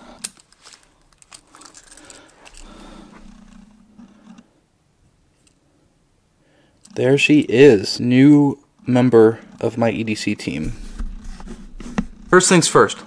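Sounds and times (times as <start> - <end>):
cloth rustling: 0.4 - 3.8.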